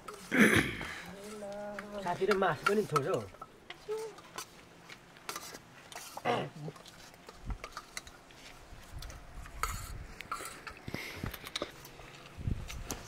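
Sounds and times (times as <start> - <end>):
spoon scraping metal plate: 5.3 - 8.2, 9.6 - 10.8.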